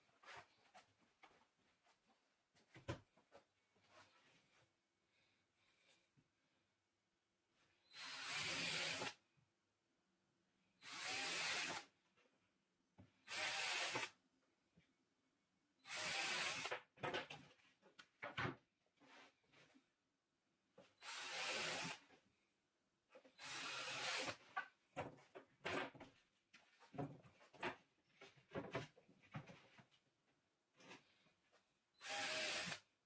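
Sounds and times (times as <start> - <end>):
cordless drill into wood: 7.9 - 9.2, 10.8 - 11.9, 13.2 - 14.2, 15.8 - 16.8, 21.0 - 22.0, 23.4 - 24.4, 32.0 - 32.9.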